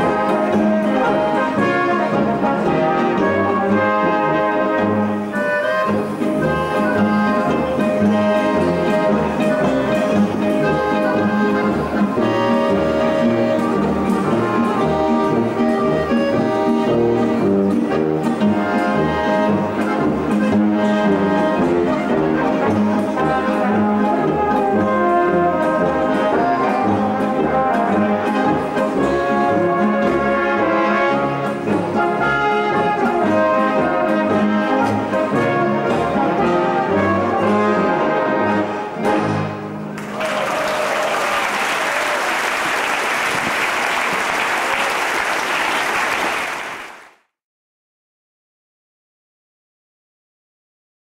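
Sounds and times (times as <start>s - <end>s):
brass band playing folk music: 0.0s - 47.1s
audience applause: 40.0s - 47.2s.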